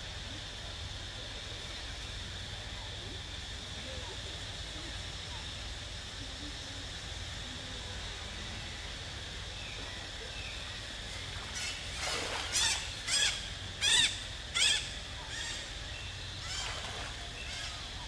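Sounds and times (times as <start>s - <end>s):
monkey screaming: 11.5s - 15.8s, 16.4s - 16.8s.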